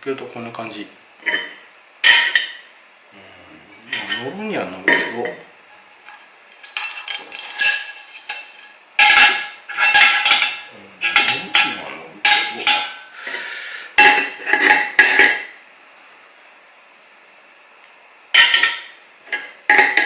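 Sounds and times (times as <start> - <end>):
pans clattering on metal stoves: 1.2 - 2.6, 3.9 - 5.4, 6.1 - 13.1, 14.0 - 15.5, 18.4 - 20.0.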